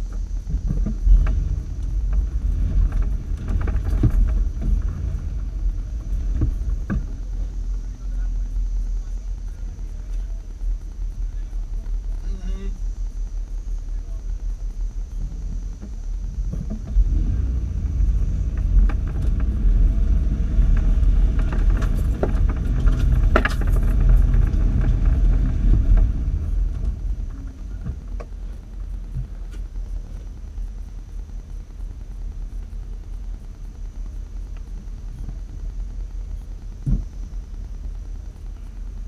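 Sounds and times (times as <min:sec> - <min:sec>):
vehicle engine running low: 0:00.0 - 0:39.0
clicks and rattles: 0:20.7 - 0:28.4.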